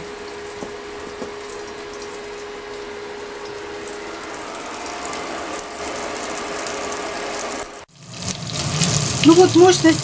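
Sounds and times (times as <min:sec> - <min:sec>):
steady hum: 0:00.0 - 0:07.9
meat frying in hot oil: 0:03.4 - 0:10.0.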